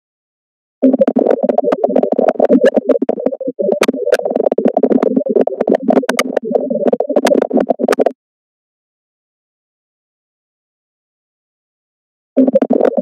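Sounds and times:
muffled electronic music: 0:00.8 - 0:08.1, 0:12.4 - 0:13.0
sharp clicks: 0:00.8 - 0:08.1.

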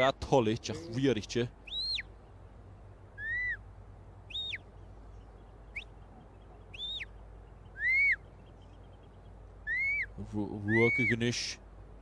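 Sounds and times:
short rising and falling whistles: 0:07.8 - 0:08.2.

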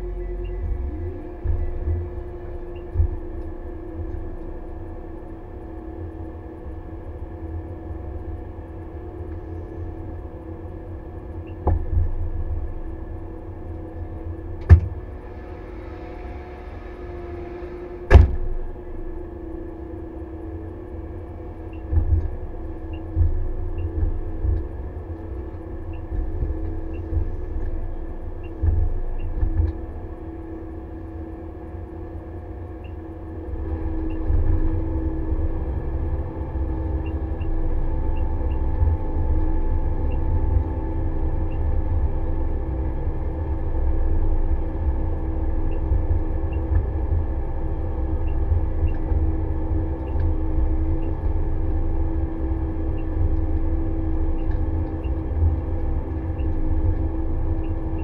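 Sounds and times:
harvester engine drone: 0:00.0 - 0:58.0
low thuds: 0:00.4 - 0:04.6, 0:21.4 - 0:30.8.

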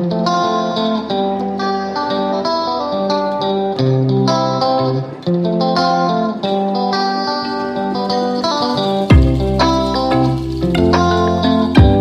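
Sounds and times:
plucked-string melody: 0:00.0 - 0:12.0
bass line: 0:09.1 - 0:12.0.

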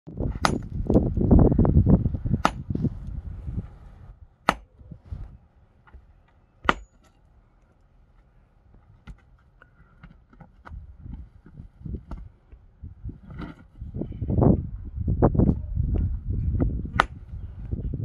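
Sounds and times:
loud low rumbling: 0:00.1 - 0:04.2
sledgehammer striking rock: 0:00.2 - 0:01.0, 0:02.3 - 0:02.8, 0:04.4 - 0:04.7, 0:06.6 - 0:07.1.

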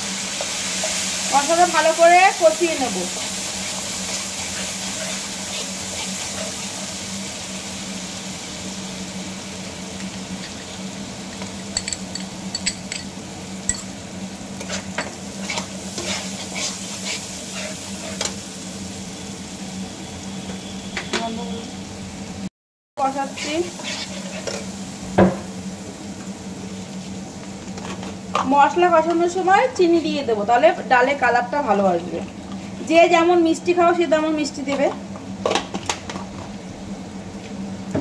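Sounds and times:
spice paste sizzling in oil: 0:00.0 - 0:21.6, 0:23.0 - 0:34.7
spatula scraping pan: 0:03.2 - 0:06.7, 0:14.6 - 0:18.4, 0:23.2 - 0:24.7.

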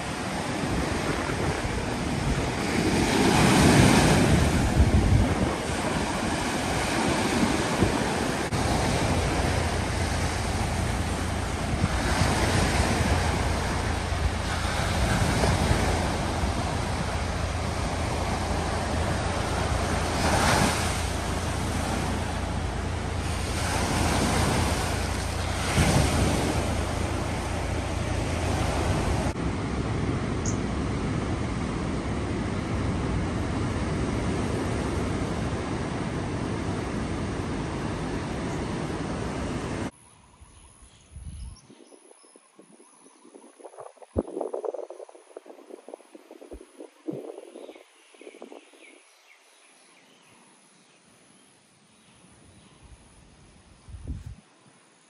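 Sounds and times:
waves breaking on beach: 0:00.0 - 0:39.9
wind rumbling on microphone: 0:00.0 - 0:49.3, 0:53.8 - 0:54.5.

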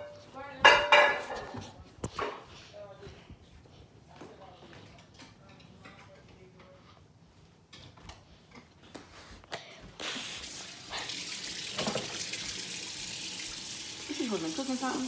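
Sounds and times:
dishes knocking: 0:00.0 - 0:01.7
tap water running into sink: 0:10.4 - 0:15.0.

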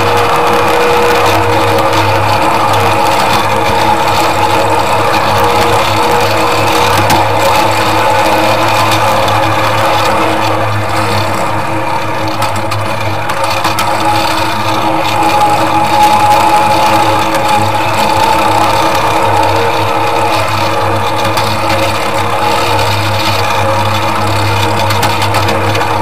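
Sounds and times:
miniature train motor hum: 0:00.0 - 0:26.0
wheels clicking on rails: 0:00.0 - 0:26.0.

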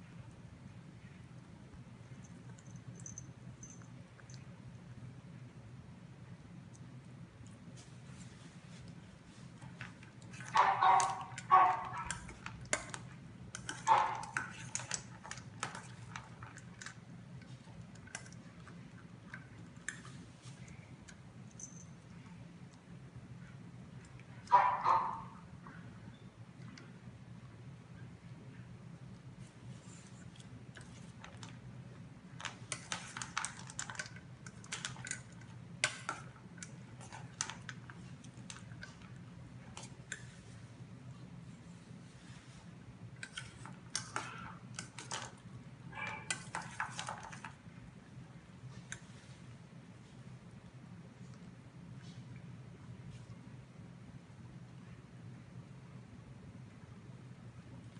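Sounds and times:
low steady hum: 0:00.0 - 0:57.9.

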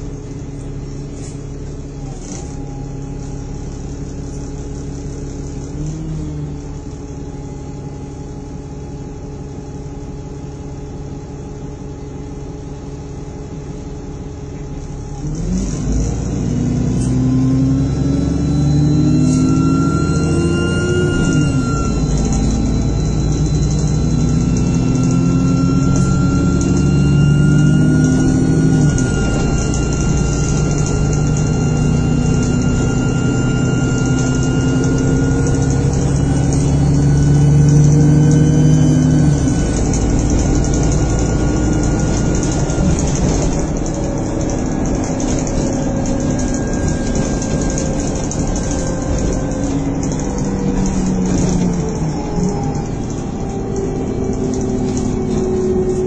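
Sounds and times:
bus engine under way: 0:00.0 - 0:56.0
thin steady whine: 0:16.6 - 0:56.0.

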